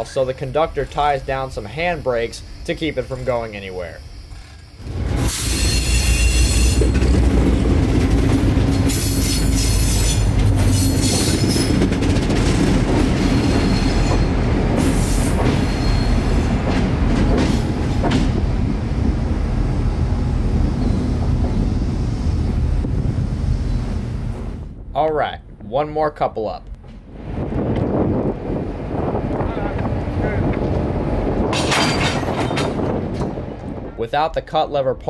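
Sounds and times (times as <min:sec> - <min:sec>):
diesel locomotives rumbling past: 0:00.0 - 0:25.0, 0:26.8 - 0:34.0
high wheel squeal: 0:00.5 - 0:07.2, 0:08.7 - 0:11.9, 0:13.1 - 0:16.6, 0:20.6 - 0:22.0, 0:23.5 - 0:24.1.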